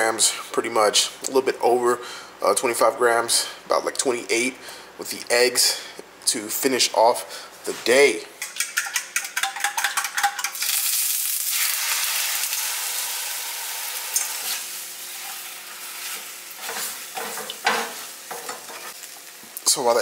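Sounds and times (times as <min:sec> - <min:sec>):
eggs sizzling in frying pan: 0:08.4 - 0:20.0
spatula scraping pan: 0:14.4 - 0:19.0.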